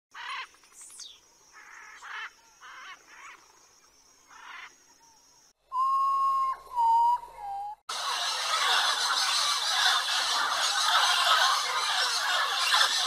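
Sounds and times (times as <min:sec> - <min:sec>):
long steady whistle: 0:05.7 - 0:07.8
harsh cawing bird calls: 0:07.9 - 0:13.0.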